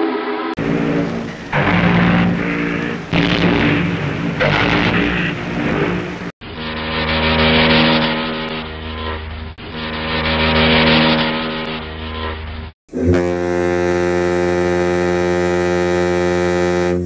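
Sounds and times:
deep ship whistle blast: 12.9s - 17.0s.

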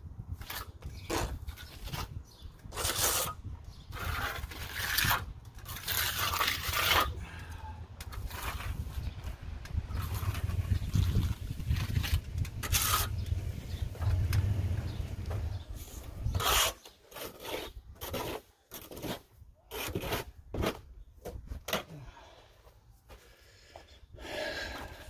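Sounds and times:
trowel scraping mortar on lath: 0.4s - 13.3s, 15.8s - 20.8s.

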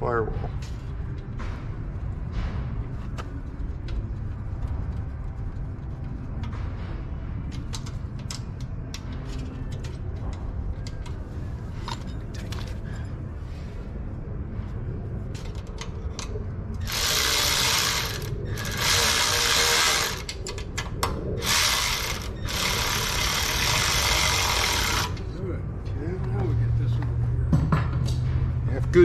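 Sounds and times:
electric ratchet whirring: 16.8s - 20.4s, 21.4s - 25.2s.

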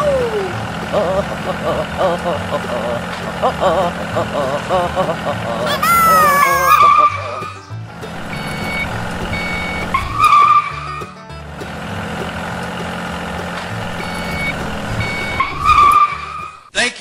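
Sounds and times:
low engine rumble: 0.0s - 16.7s
beeping tone: 8.3s - 10.0s, 13.9s - 15.8s.

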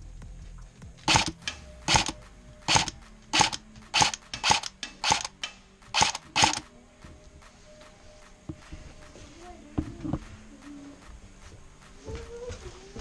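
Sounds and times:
airsoft rifle shots: 1.1s - 6.7s.

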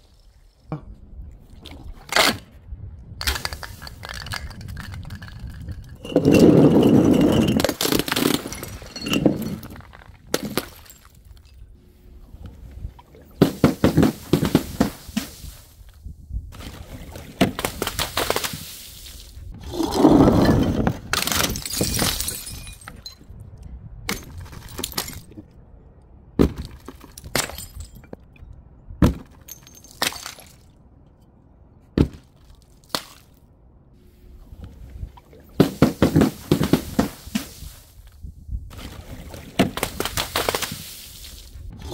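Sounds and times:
glass bottles shattering: 3.9s - 11.6s, 20.2s - 23.2s, 27.0s - 28.2s, 29.3s - 30.7s
glass shards clinking: 5.6s - 9.8s, 21.4s - 23.2s.

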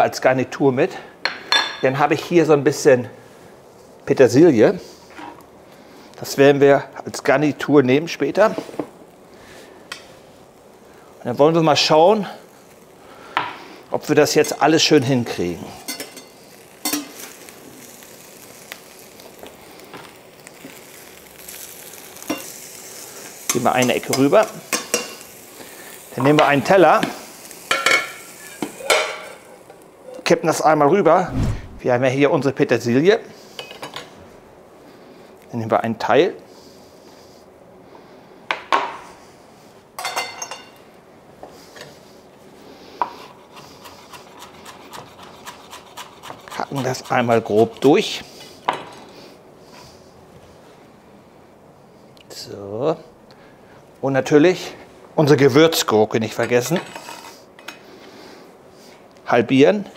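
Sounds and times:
food sizzling in a frying pan: 8.6s - 30.6s
metal utensils clinking on countertop: 15.9s - 17.1s, 40.0s - 40.7s
metal utensils scraping food: 56.8s - 57.4s.

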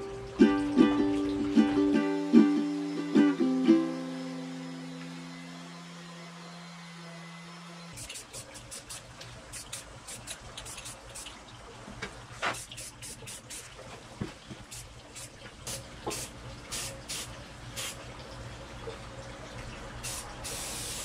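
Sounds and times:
spray paint can hissing bursts: 8.0s - 11.3s, 12.4s - 13.7s, 14.7s - 18.0s, 20.0s - 21.0s.

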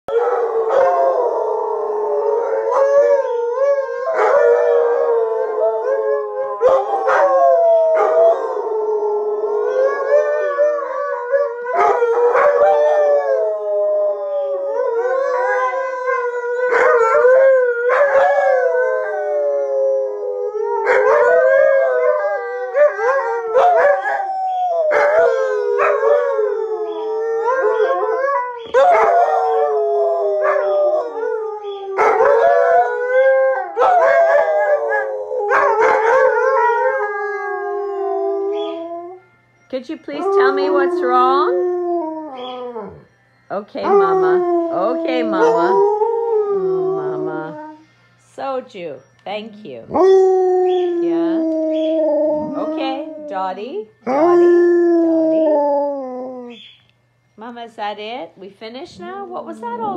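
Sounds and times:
dogs howling in chorus: 0.1s - 39.2s, 40.1s - 43.1s, 43.8s - 47.8s, 49.9s - 56.7s.

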